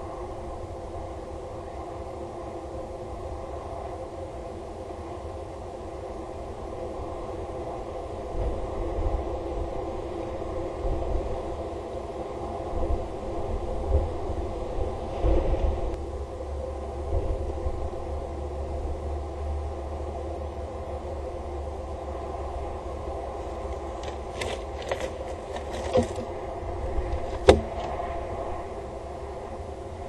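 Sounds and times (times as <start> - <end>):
bird landing on grated ledge: 23.7 - 26.3, 27.0 - 28.0.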